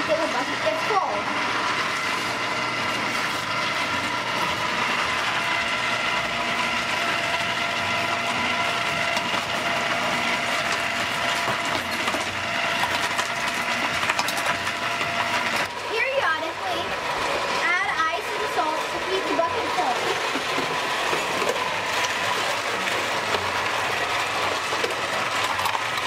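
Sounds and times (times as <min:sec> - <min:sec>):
ice cream maker motor running: 0:00.0 - 0:26.0
ice clattering into bucket: 0:08.2 - 0:15.7, 0:18.8 - 0:26.0.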